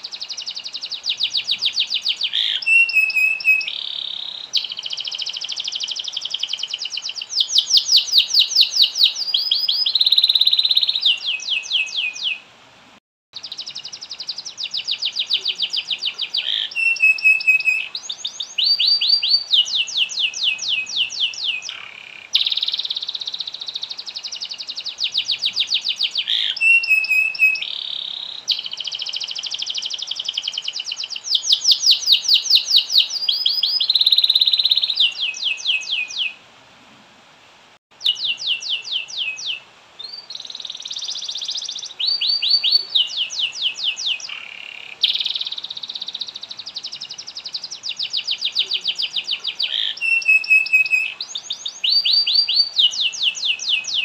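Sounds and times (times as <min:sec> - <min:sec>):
canary singing trills: 0:00.0 - 0:12.4, 0:13.4 - 0:36.4, 0:37.9 - 0:54.0.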